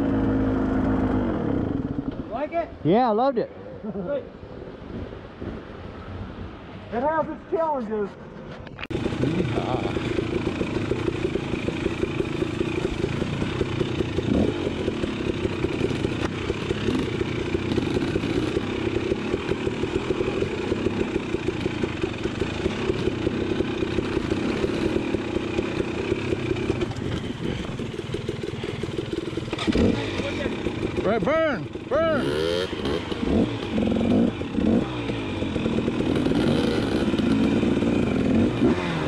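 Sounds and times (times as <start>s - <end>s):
off-road vehicle engine pulsing: 8.2s - 39.0s.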